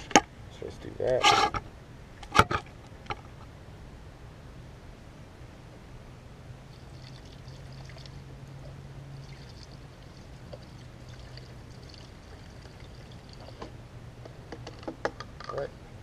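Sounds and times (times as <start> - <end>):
liquid trickling through a funnel: 6.7 - 13.7.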